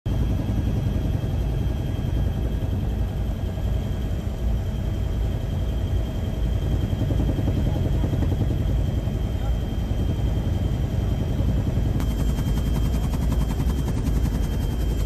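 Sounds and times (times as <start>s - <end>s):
aircraft rumble in flight: 0.1s - 15.0s
faint high whine: 1.3s - 15.0s.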